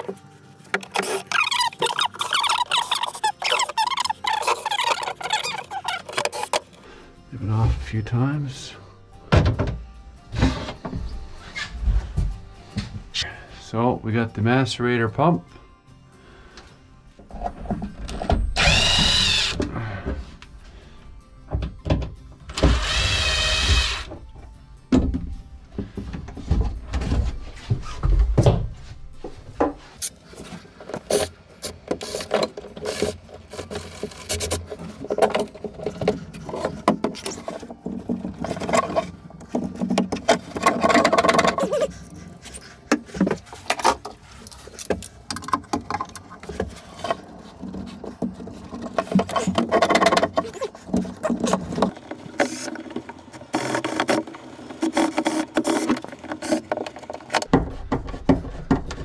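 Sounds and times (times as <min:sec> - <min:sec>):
tools knocking and scraping: 0:00.0 - 0:06.8, 0:29.3 - 0:59.0.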